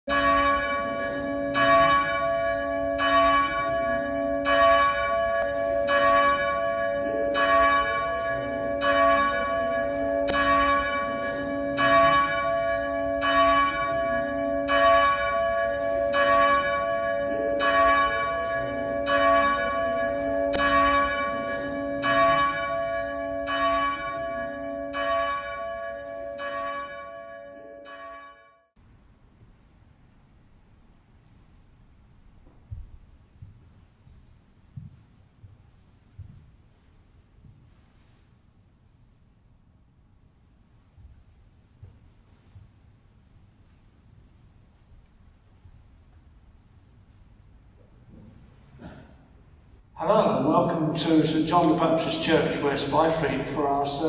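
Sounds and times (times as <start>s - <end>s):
church bell tolling: 0.1s - 28.7s, 49.9s - 54.0s.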